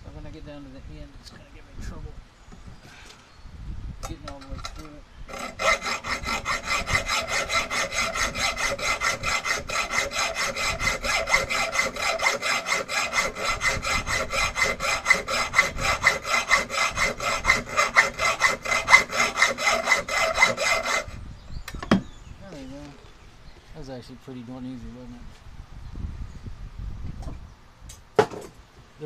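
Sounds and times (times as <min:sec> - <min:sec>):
hacksaw sawing metal: 0:04.3 - 0:21.2.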